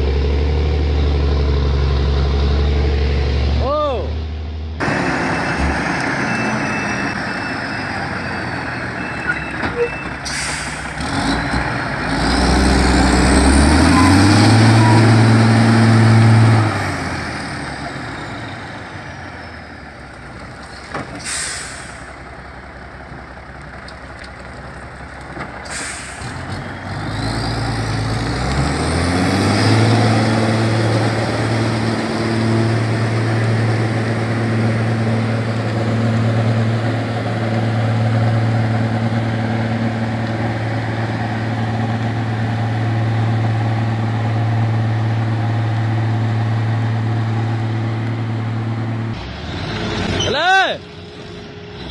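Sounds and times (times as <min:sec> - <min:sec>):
truck engine revving under load: 0:00.0 - 0:51.9
air brake hisses: 0:10.2 - 0:10.9, 0:21.2 - 0:22.2, 0:25.6 - 0:26.4.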